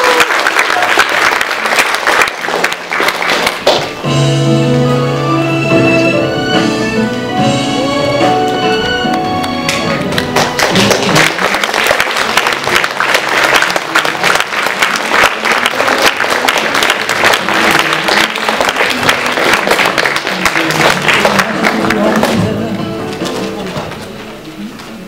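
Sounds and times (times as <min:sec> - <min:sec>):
crowd applauding: 0:00.0 - 0:04.0, 0:08.7 - 0:22.5
music: 0:03.4 - 0:25.0.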